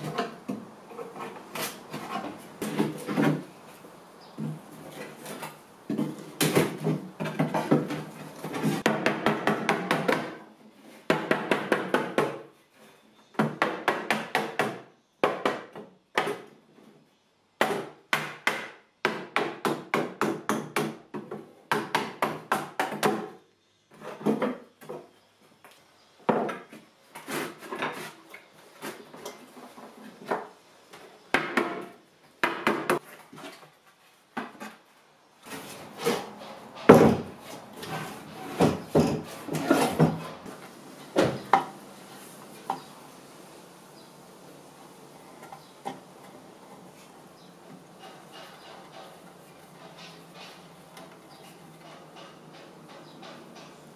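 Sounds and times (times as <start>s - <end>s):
hammer knocking on wooden boards: 8.6s - 10.4s, 11.1s - 12.4s, 13.3s - 16.4s, 17.6s - 23.4s, 36.8s - 37.4s.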